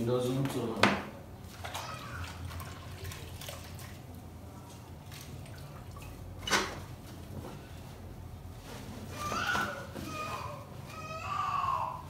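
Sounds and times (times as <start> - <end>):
water dripping and splashing: 1.4 - 6.6.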